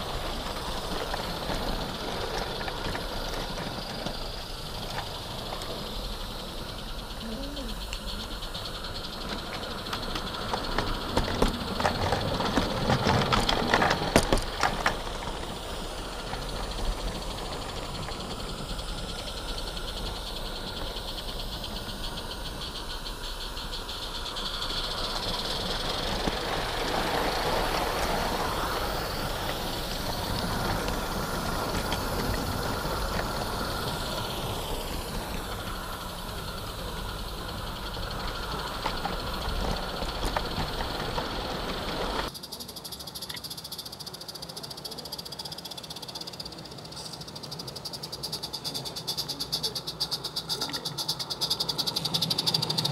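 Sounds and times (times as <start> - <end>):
wagons rattling: 0.0 - 19.4, 24.3 - 42.3
steam hissing: 0.0 - 52.9
wheels clicking over track: 0.0 - 52.9.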